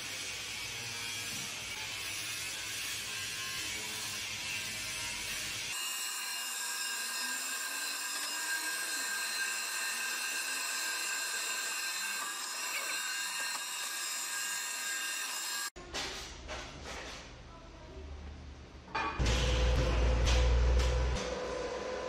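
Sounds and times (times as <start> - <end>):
drill press boring steel: 5.7 - 15.7.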